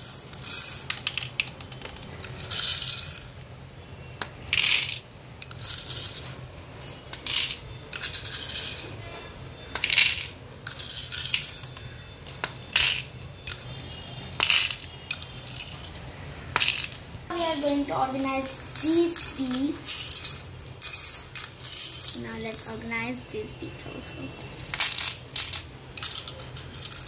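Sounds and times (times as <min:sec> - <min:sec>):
plastic beads rattling: 0:00.0 - 0:03.4, 0:04.4 - 0:09.0, 0:09.6 - 0:23.2, 0:24.6 - 0:27.0.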